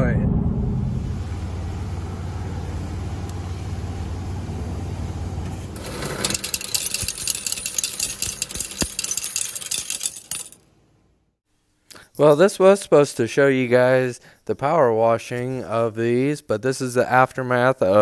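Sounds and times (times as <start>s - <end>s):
machine hum: 0.2s - 11.2s
coins clattering into metal tray: 5.8s - 10.6s.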